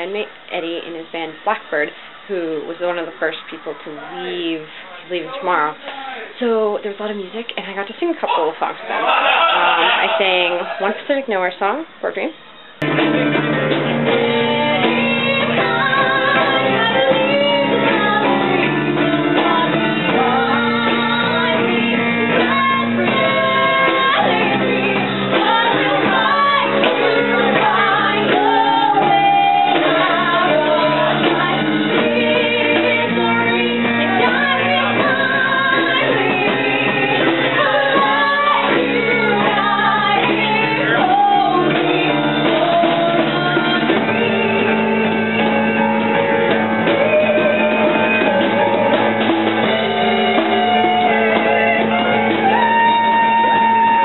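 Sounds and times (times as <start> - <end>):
acoustic guitar strumming: 12.7 - 54.0
person singing: 14.2 - 46.0, 46.8 - 54.0.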